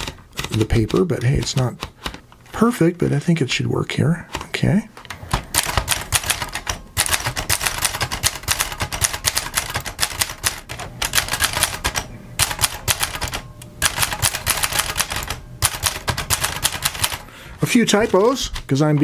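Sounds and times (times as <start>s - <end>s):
typewriter typing fast: 0.0s - 2.2s, 5.3s - 17.2s.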